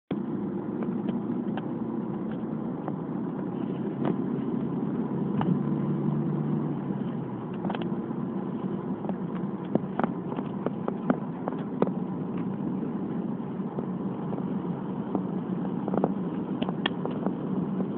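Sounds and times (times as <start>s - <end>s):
car engine and tyre drone: 0.1s - 17.9s.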